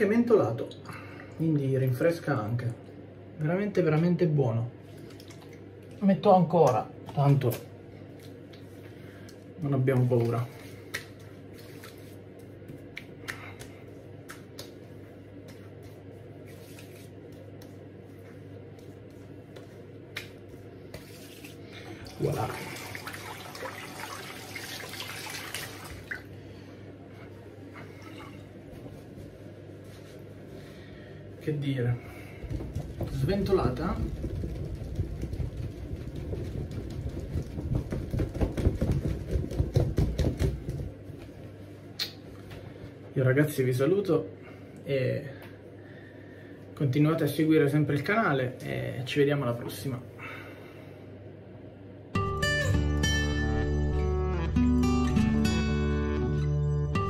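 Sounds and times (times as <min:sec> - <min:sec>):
hands slapping face: 0:12.6 - 0:15.6, 0:19.5 - 0:21.1
towel flapping against microphone: 0:32.4 - 0:41.4.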